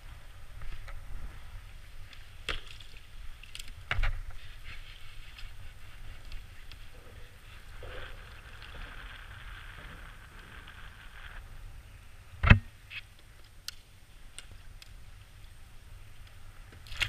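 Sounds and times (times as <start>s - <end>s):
water moving around kayak: 0.0s - 12.0s
wind rumbling on microphone: 0.0s - 13.4s
steady hiss: 0.0s - 17.0s.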